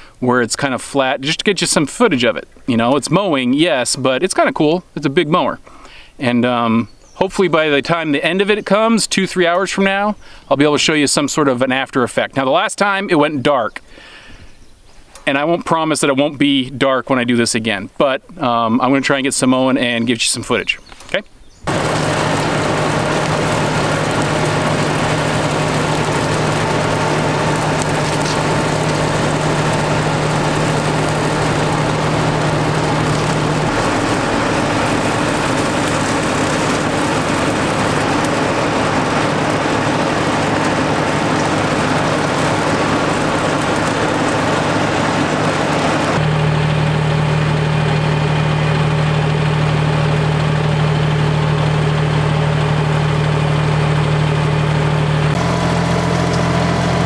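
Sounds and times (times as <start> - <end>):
tractor diesel engine running: 21.7 - 57.0.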